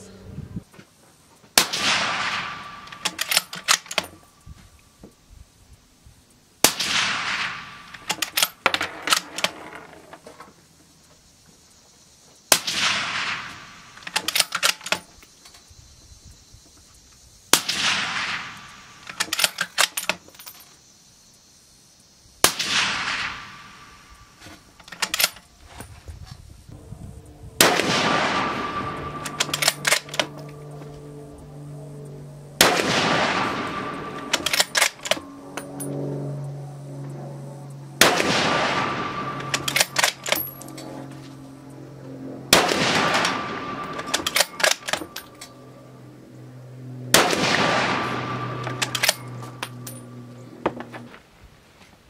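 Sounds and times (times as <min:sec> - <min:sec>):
rifle shots with ringing tail: 0:01.6 - 0:04.4, 0:06.6 - 0:09.9, 0:12.5 - 0:15.0, 0:17.5 - 0:20.1, 0:22.4 - 0:24.4, 0:27.5 - 0:50.6
rifle bolt metallic clicks: 0:02.8 - 0:04.2, 0:14.0 - 0:15.1, 0:19.1 - 0:20.6, 0:24.8 - 0:25.5, 0:29.2 - 0:30.6, 0:34.2 - 0:36.0, 0:39.4 - 0:40.9, 0:43.1 - 0:45.6, 0:48.6 - 0:50.1.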